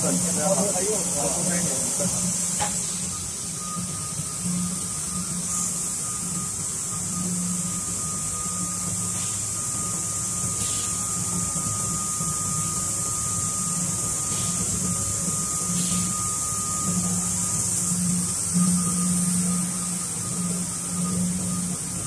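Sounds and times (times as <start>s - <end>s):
even hiss: 0.0s - 4.4s
motors and blowers humming: 0.0s - 22.0s
thin high tone: 0.0s - 22.0s.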